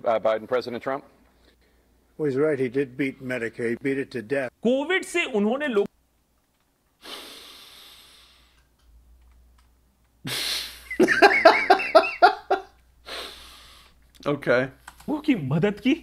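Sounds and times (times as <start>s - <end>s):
breathy exhale: 7.0s - 8.7s, 13.0s - 14.0s
man laughing: 10.7s - 12.8s.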